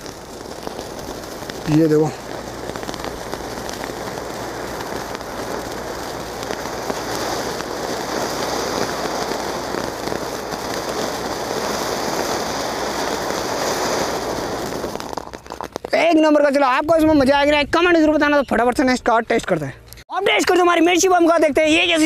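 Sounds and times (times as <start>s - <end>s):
firework hissing: 0.0s - 16.1s
faint firework crackles: 0.0s - 16.6s.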